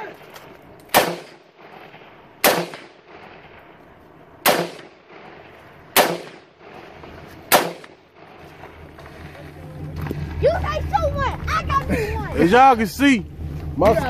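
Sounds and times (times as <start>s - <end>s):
rifle shots with echo: 0.9s - 8.7s.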